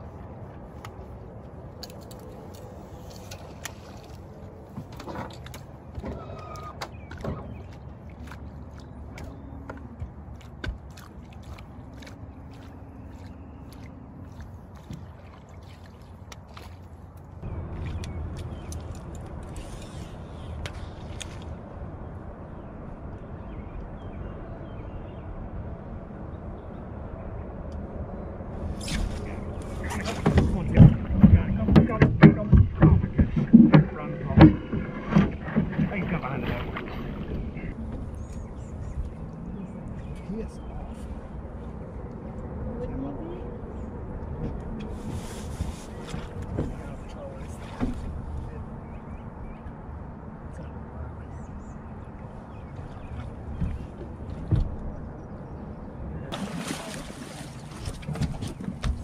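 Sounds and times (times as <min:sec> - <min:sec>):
outdoor background noise on water: 0:00.0 - 0:59.0
steady low rumble: 0:17.0 - 0:56.4.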